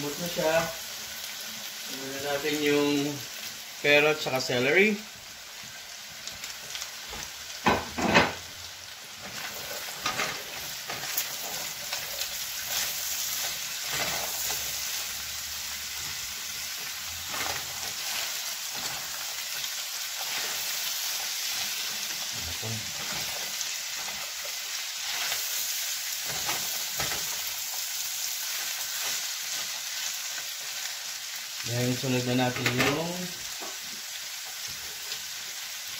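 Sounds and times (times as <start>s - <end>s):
food sizzling in a frying pan: 0.0s - 35.9s
spatula scraping a pan: 9.2s - 14.9s.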